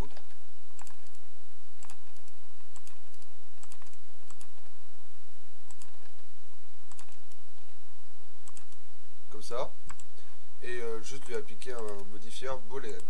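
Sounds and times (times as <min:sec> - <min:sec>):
low electrical hum: 0:00.0 - 0:13.0
mouse and keyboard clicks: 0:01.8 - 0:04.6, 0:05.7 - 0:06.2, 0:06.9 - 0:07.4.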